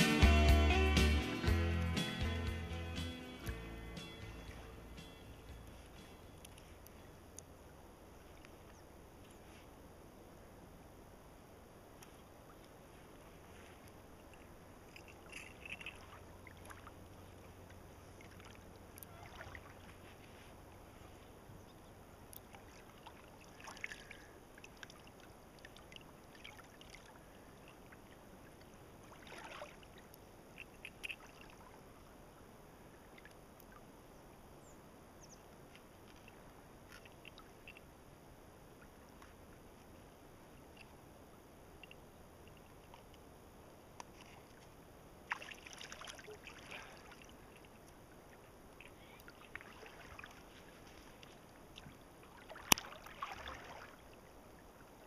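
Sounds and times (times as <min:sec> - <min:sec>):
faint water ambience: 0:00.0 - 0:55.0
light water splashes: 0:04.2 - 0:09.9, 0:11.9 - 0:34.7, 0:35.3 - 0:55.0.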